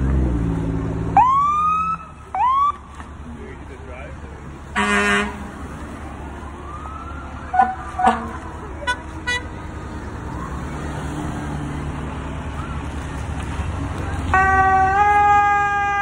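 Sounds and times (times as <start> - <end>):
passing vehicle engines: 0.0 - 16.0
car horns tooting: 4.7 - 5.6, 7.5 - 9.6, 14.3 - 16.0.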